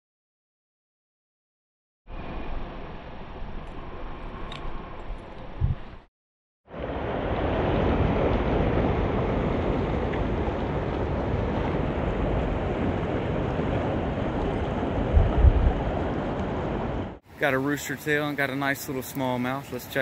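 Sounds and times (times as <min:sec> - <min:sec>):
wind rumble on microphone: 0:03.3 - 0:06.1, 0:06.7 - 0:17.2
short low thumps: 0:05.4 - 0:06.0.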